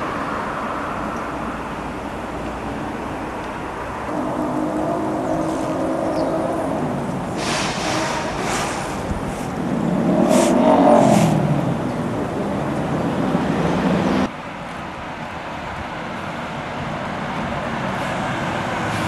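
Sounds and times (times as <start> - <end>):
bus approaching: 0.0 - 19.0
bus engines running: 0.0 - 19.0
road traffic: 0.0 - 19.0
short air hisses: 7.3 - 9.6, 10.2 - 11.4.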